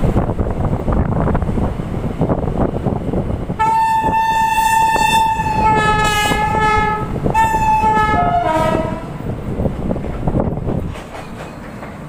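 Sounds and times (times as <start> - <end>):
moving train rumble: 0.0 - 12.0
train horn blasts: 3.6 - 9.2.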